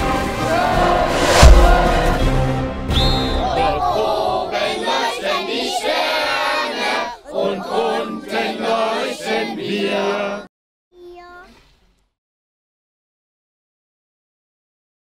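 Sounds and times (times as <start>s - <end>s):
children chanting in unison: 0.4s - 2.3s, 3.4s - 10.5s.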